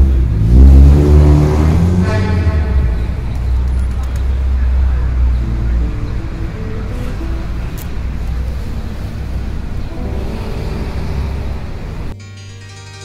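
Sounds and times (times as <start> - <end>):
low outdoor rumble: 2.0 - 12.2.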